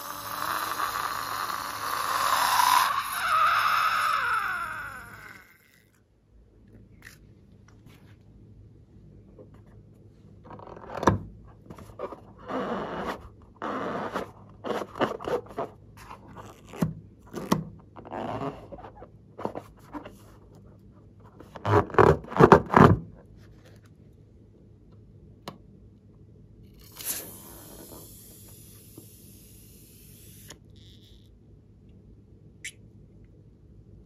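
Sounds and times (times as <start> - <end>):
hands rubbing rubber balloon: 11.6 - 16.8.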